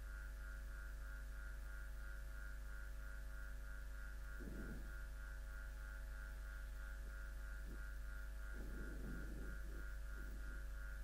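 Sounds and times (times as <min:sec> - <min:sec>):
electrical mains hum: 0:00.0 - 0:11.0
pulsing high whine: 0:00.0 - 0:11.0.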